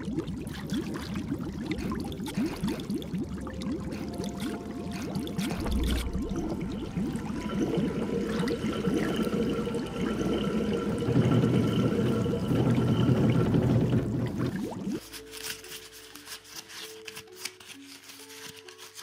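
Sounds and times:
water bubbling and gurgling: 0:00.0 - 0:15.5
faint steady tonal hum: 0:01.1 - 0:18.2
deep rumble: 0:05.1 - 0:15.0.

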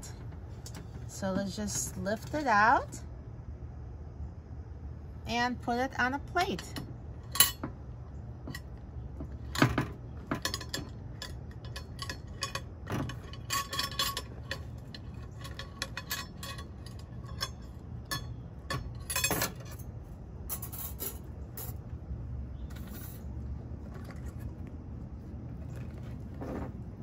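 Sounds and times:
wire rack clinking on ceramic plate: 0:06.6 - 0:07.7, 0:09.4 - 0:19.9.

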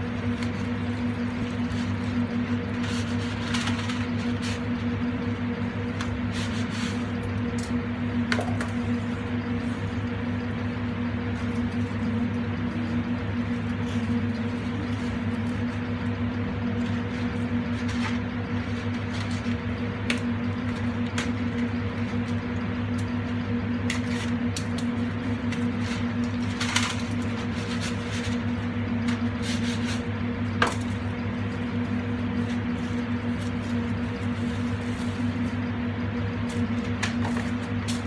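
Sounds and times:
kitchen equipment humming: 0:00.0 - 0:38.0.

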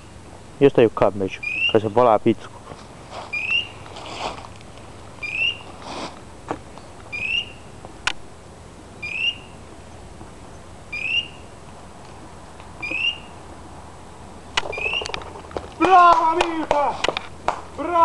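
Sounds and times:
rustling: 0:02.5 - 0:07.1
rising electronic chirp: 0:05.2 - 0:05.7, 0:07.1 - 0:07.6, 0:09.0 - 0:09.6, 0:10.9 - 0:11.4, 0:14.6 - 0:15.2.

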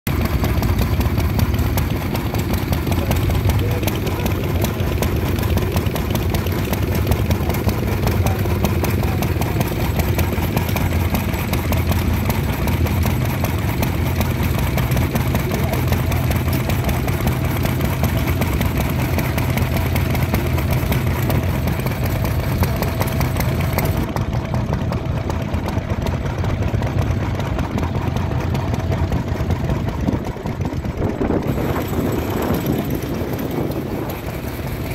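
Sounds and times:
stationary engine running: 0:00.1 - 0:34.9.

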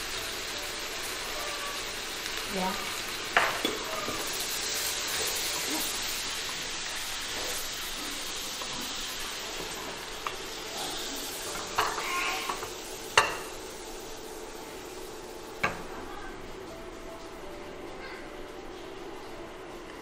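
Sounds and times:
food sizzling in a wok: 0:00.0 - 0:20.0
wok and spatula clinking on plate: 0:03.4 - 0:04.3.

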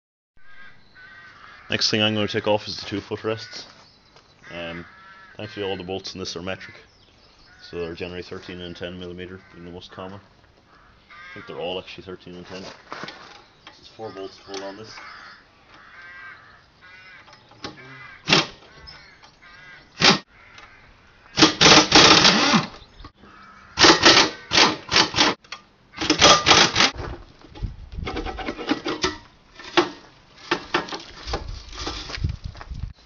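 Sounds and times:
power drill spinning out bolts: 0:21.4 - 0:22.8, 0:23.8 - 0:25.4, 0:26.0 - 0:27.0
metallic clicks and clanks: 0:28.0 - 0:31.0.

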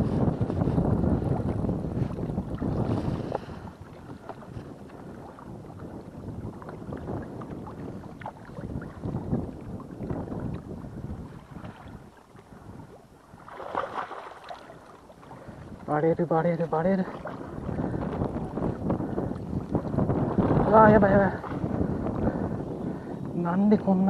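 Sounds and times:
wind on microphone: 0:00.0 - 0:24.0
water splashing against concrete: 0:13.5 - 0:14.8.

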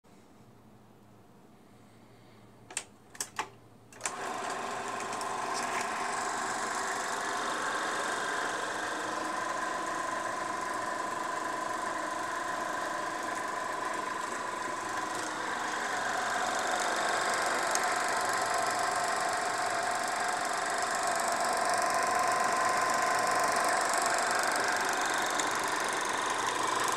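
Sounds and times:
projector control clicks: 0:02.7 - 0:07.8, 0:11.2 - 0:26.9
film projector motor clattering: 0:04.0 - 0:26.9.

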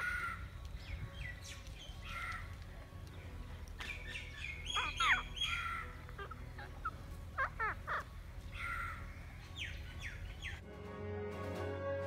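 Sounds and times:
harsh rasping bird calls: 0:00.0 - 0:02.7, 0:03.8 - 0:10.6
parakeets screeching: 0:03.9 - 0:10.6.

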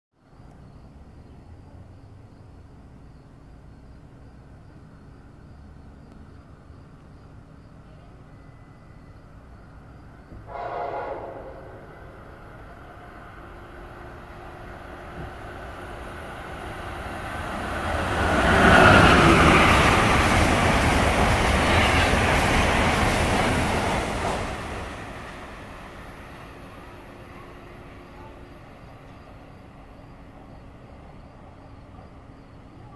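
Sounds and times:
train passing at speed: 0:00.6 - 0:32.9
train horn blast: 0:10.4 - 0:12.3.

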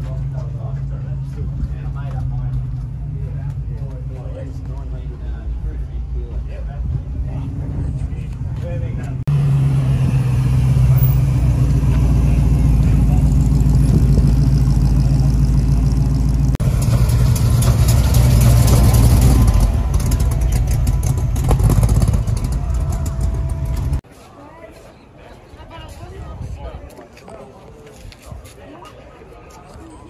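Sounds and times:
car engine idling: 0:09.2 - 0:24.0.

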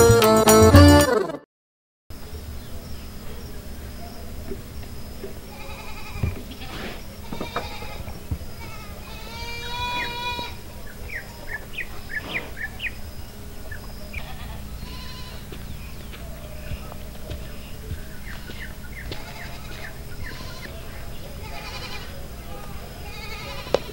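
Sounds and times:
low background noise: 0:02.1 - 0:23.9
livestock bleating: 0:05.2 - 0:13.0, 0:13.6 - 0:23.9.

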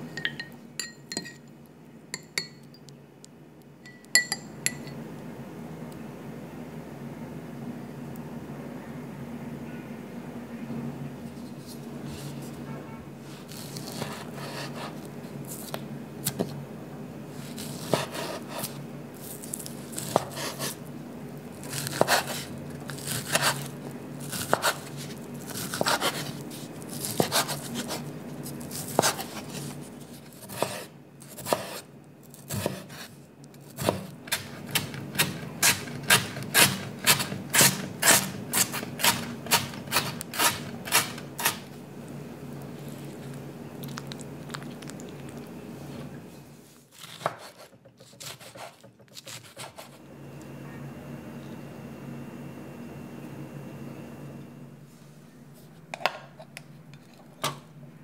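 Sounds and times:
knife chopping quickly: 0:17.6 - 0:18.7, 0:21.7 - 0:22.5, 0:24.3 - 0:26.3, 0:27.0 - 0:28.0, 0:30.4 - 0:31.8, 0:32.5 - 0:33.1, 0:33.7 - 0:41.6, 0:47.0 - 0:50.0
knife slicing on wooden board: 0:24.3 - 0:28.0, 0:47.0 - 0:50.0.

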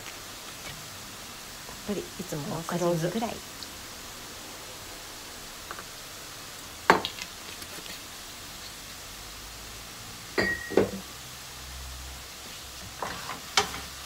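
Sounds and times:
glass bottle knocking down: 0:10.4 - 0:11.0
small glass clinks: 0:10.4 - 0:11.0.

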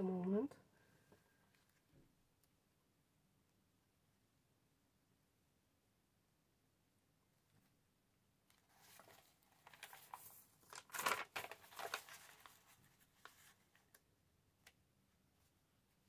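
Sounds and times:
paper rustling and crinkling: 0:08.5 - 0:14.0.

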